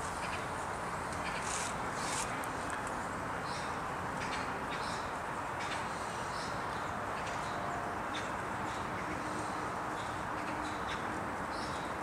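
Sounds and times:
steady background hiss: 0.0s - 12.0s
small birds chirping: 3.4s - 12.0s.

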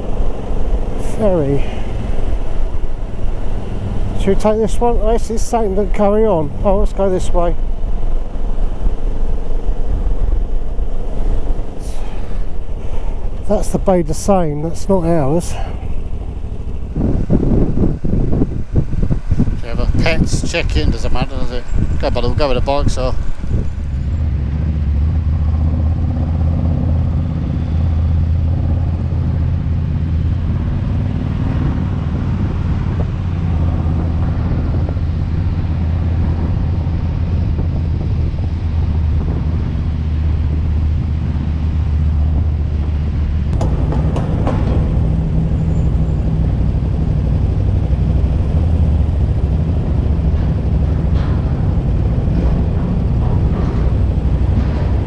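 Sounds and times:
motorcycle engine idling: 0.0s - 19.6s, 43.6s - 52.1s.

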